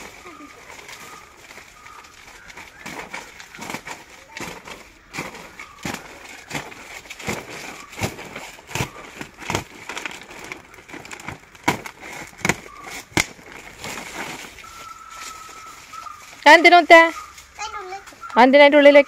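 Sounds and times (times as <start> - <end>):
blade slicing plastic tarpaulin: 2.8 - 14.2.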